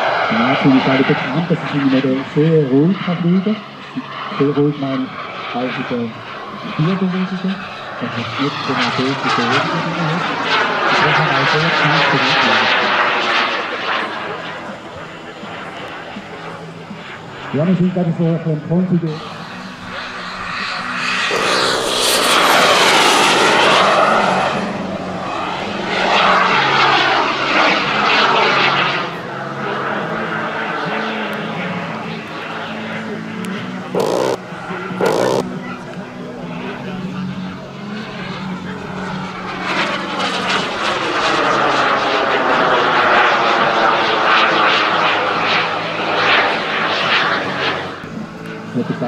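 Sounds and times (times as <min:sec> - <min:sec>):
model jet engine roar: 0:00.0 - 0:49.0
model jet engine rush: 0:18.3 - 0:29.2, 0:34.0 - 0:34.4, 0:35.0 - 0:35.5
high turbine whine: 0:19.2 - 0:24.0, 0:34.0 - 0:35.5.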